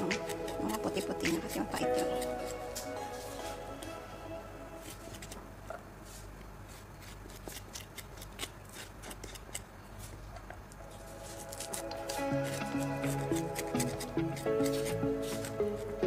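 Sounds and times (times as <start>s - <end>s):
knife scraping papaya: 0.0s - 3.0s, 6.1s - 10.2s, 10.9s - 16.0s.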